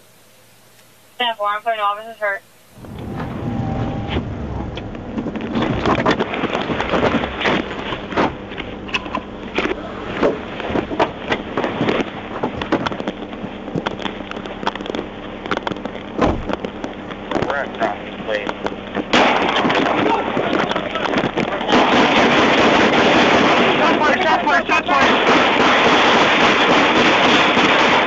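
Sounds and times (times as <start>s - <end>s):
idling car engine hum: 2.6s - 21.8s
gunfire cracks: 21.7s - 28.0s.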